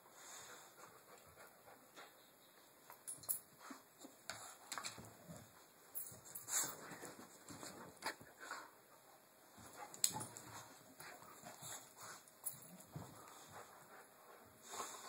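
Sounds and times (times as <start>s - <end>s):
dogs scuffling: 3.0s - 8.3s.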